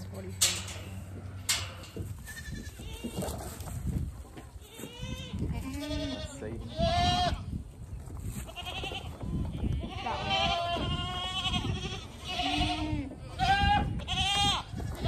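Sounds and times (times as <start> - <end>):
goats bleating: 4.6 - 7.4, 8.5 - 15.0.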